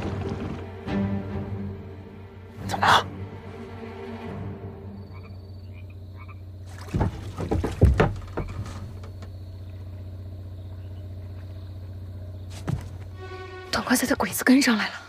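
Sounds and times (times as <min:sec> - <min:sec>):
frogs croaking: 0:00.0 - 0:15.0
steady low hum: 0:01.3 - 0:15.0
knocks and thuds: 0:06.7 - 0:09.4, 0:12.5 - 0:13.1.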